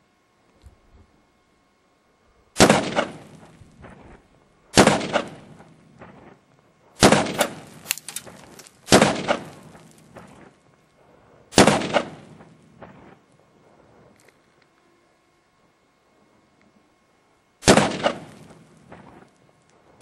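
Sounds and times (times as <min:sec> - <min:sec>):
rifle shots with echo: 0:02.6 - 0:04.1, 0:04.7 - 0:06.2, 0:07.0 - 0:10.2, 0:11.5 - 0:13.1, 0:17.6 - 0:19.2.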